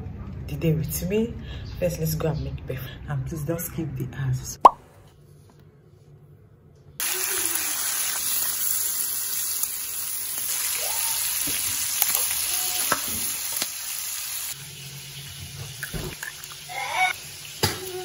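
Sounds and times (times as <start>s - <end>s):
bacon sizzling in a pan: 7.0s - 18.0s.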